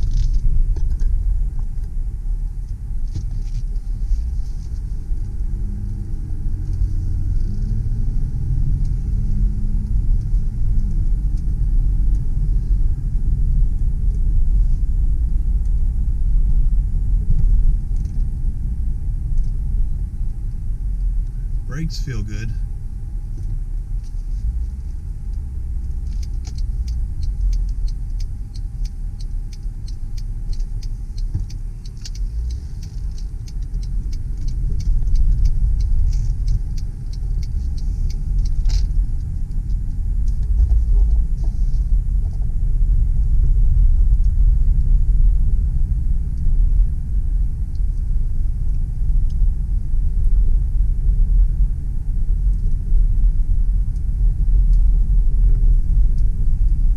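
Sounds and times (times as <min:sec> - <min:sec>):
car engine and road rumble: 0:00.0 - 0:56.9
faint light ticking: 0:23.3 - 0:42.4.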